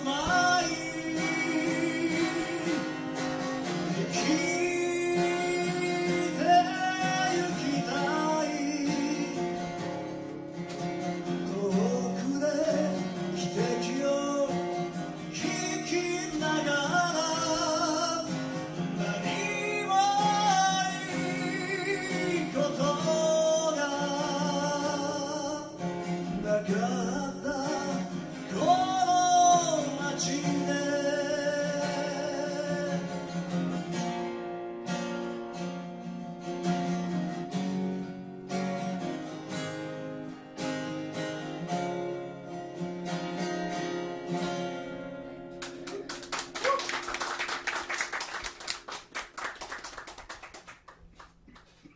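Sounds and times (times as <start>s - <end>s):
man singing a slow ballad: 0.0s - 3.2s, 3.8s - 10.1s, 11.3s - 33.4s
acoustic guitar strumming: 0.0s - 47.4s
people clapping: 45.6s - 51.9s.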